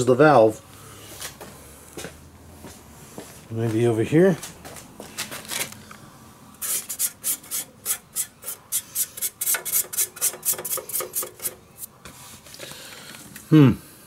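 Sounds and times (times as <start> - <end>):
hand scraping engine cover plate: 6.6 - 12.6.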